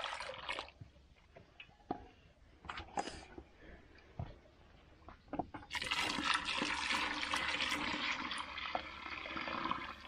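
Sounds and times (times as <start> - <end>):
liquid pouring: 0.0 - 0.8, 5.6 - 10.0.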